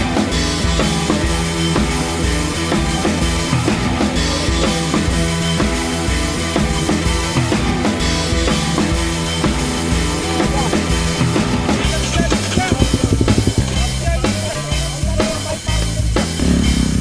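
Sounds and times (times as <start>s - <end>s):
drum and bass music: 0.0s - 17.0s
fast drum fill: 11.7s - 17.0s.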